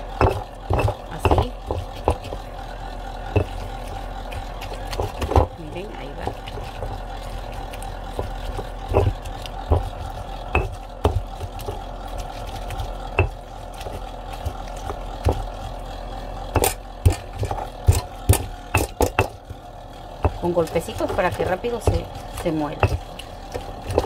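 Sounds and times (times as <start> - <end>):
steady low hum: 0.0 - 24.0
stone pestle knocking on stone: 0.1 - 2.4, 3.3 - 3.6, 8.2 - 11.8, 13.2 - 15.5, 16.5 - 19.5.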